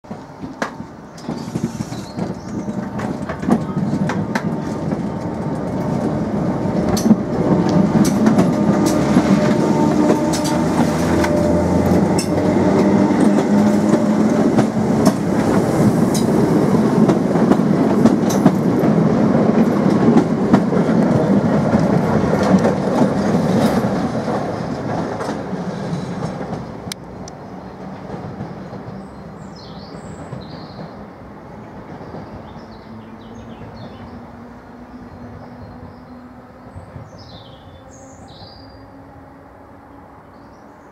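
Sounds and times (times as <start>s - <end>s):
train wheels clicking over rail joints: 0.1s - 31.0s
train running rumble: 0.1s - 40.2s.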